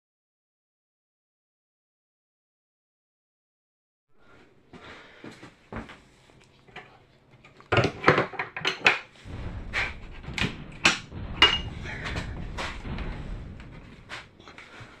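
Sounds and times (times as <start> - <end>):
metal handles clanking on crates: 7.6 - 9.1
low rumble: 9.2 - 15.0.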